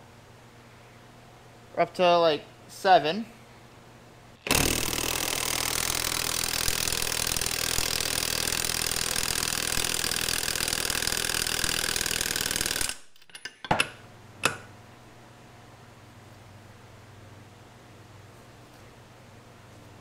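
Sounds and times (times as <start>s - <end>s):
impact wrench hammering: 4.4s - 13.0s.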